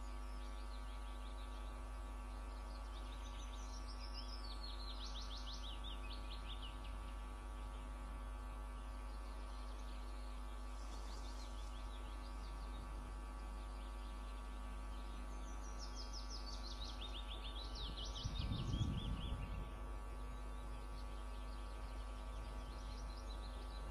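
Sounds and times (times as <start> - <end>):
songbird singing: 0.0 - 23.9
steady electrical hum: 0.0 - 23.9
low rumble: 18.2 - 19.8.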